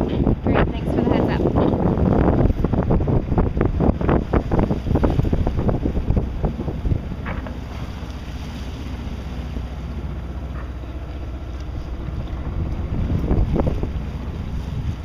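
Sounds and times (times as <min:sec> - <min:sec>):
steady low rumble: 0:00.0 - 0:15.0
wind buffeting microphone: 0:00.0 - 0:15.0.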